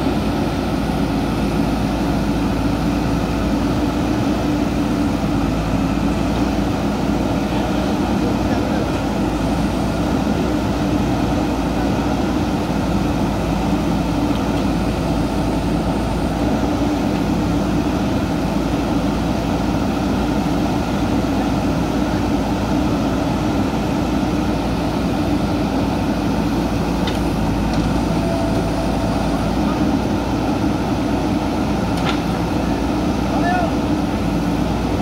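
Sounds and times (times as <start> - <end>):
diesel engine running under load: 0.0 - 35.0.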